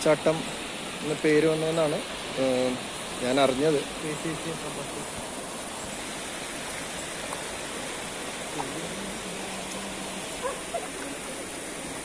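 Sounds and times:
waterfall rushing: 0.0s - 12.0s
faint voices: 8.5s - 12.0s.

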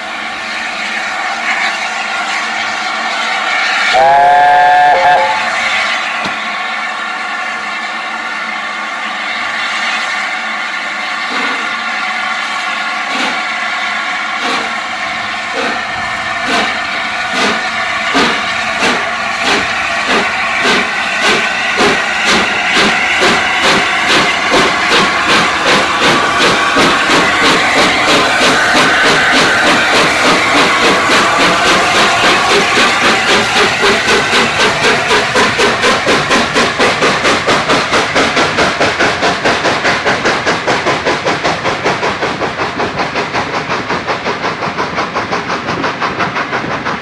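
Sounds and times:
hiss of steam: 0.0s - 47.0s
steam locomotive exhaust beats: 0.0s - 47.0s
steam locomotive chime whistle: 3.4s - 6.5s.

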